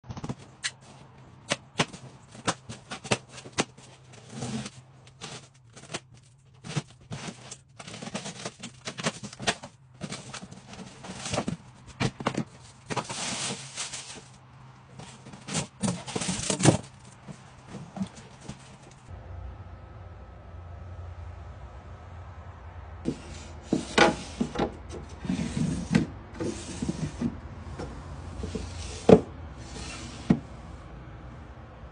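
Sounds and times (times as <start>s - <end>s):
cardboard scraping and tearing: 0.1s - 19.0s.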